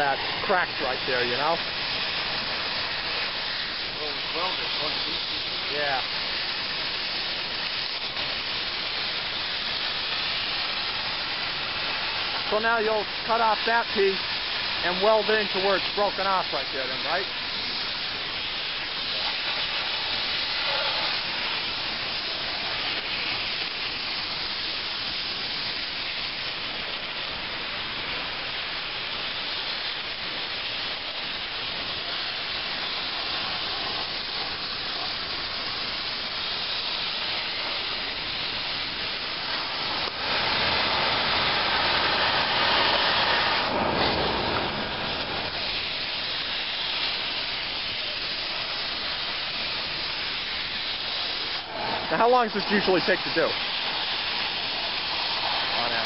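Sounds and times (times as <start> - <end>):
cutting torch hissing: 0.0 - 56.0.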